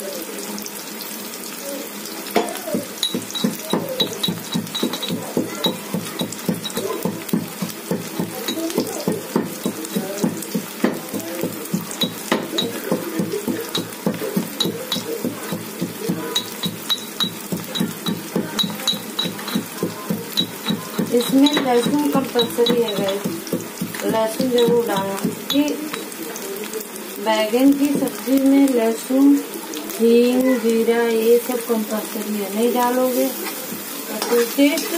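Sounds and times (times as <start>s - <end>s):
onions sizzling in oil: 0.0s - 34.9s
metal utensil clinking: 2.9s - 26.2s.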